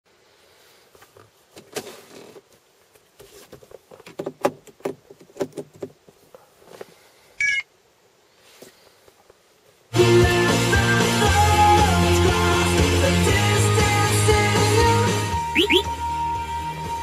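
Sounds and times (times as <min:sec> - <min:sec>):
short electronic beep: 0:07.4 - 0:07.7, 0:15.5 - 0:15.9.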